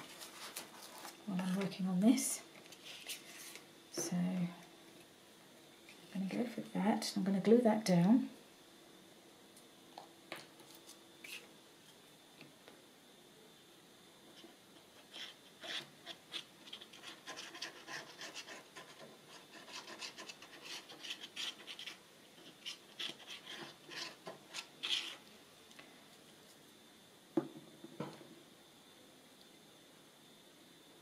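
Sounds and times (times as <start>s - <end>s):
scratchy rubbing on paper: 14.4s - 25.2s.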